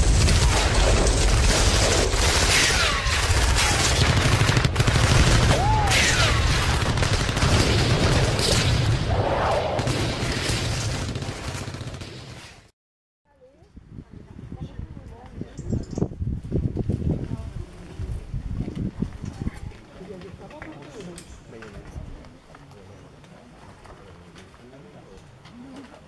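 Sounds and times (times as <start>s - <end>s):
rifle and machine-gun fire: 0.0s - 12.7s
rumble of explosions: 0.0s - 12.7s.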